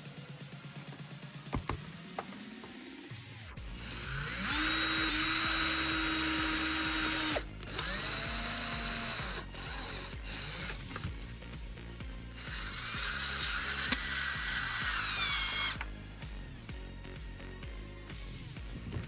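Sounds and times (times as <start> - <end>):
electric drill whining: 3.6 - 11.4, 12.2 - 16.0.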